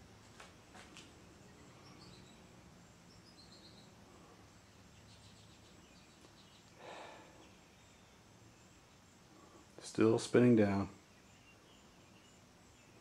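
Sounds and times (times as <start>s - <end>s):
faint low hum: 0.0s - 13.0s
soft rustle: 0.2s - 1.3s
faint high chirps: 1.2s - 10.1s.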